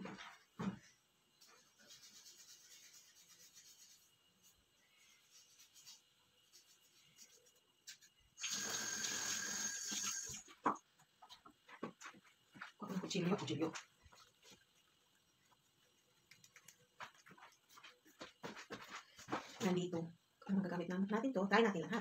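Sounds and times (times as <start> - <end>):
kitchen tap running: 8.4 - 10.7.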